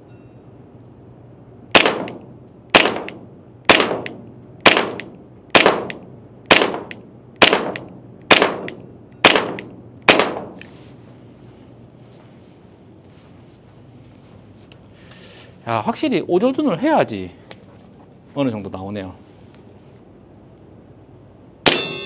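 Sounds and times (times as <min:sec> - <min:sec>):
airsoft pistol shots: 0:01.7 - 0:10.6.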